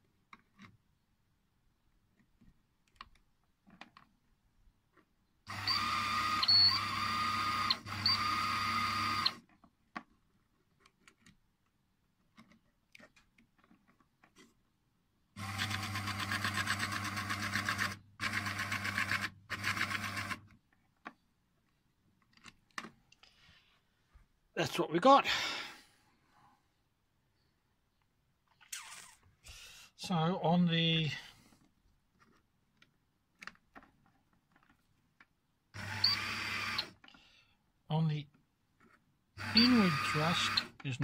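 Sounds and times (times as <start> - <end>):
electric motor whine: 5.5 - 9.4, 39.4 - 40.7.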